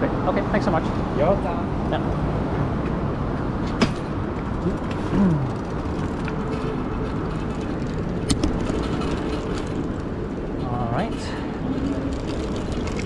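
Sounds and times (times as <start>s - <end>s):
city traffic noise: 0.0s - 13.0s
bike rolling over paving: 3.7s - 13.0s.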